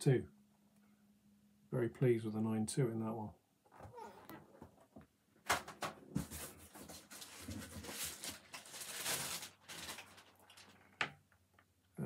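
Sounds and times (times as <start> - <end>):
plastic cases rustling and rubbing: 3.8 - 10.8.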